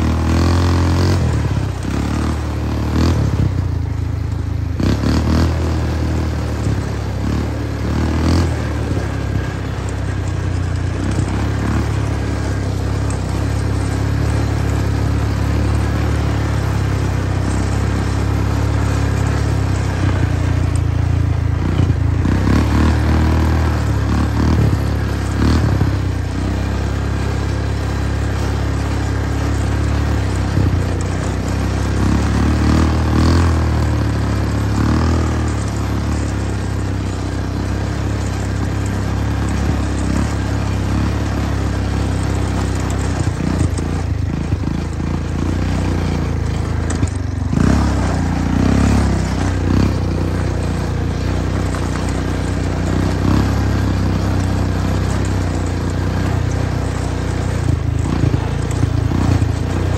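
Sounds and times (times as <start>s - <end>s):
engine running with low hum: 0.0s - 59.9s.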